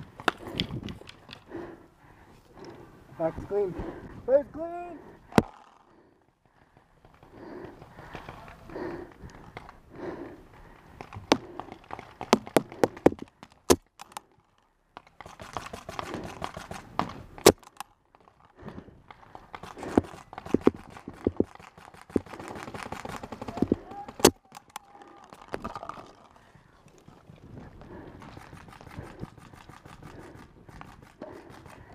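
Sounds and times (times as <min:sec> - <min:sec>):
paintball markers firing: 0:11.0 - 0:14.4, 0:15.0 - 0:26.5, 0:27.9 - 0:31.9.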